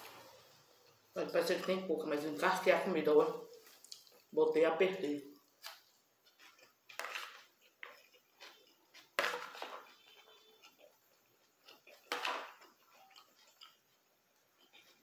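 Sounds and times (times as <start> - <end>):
chewing: 3.5 - 4.4, 5.3 - 15.0
fork scraping on a plate: 6.3 - 14.0.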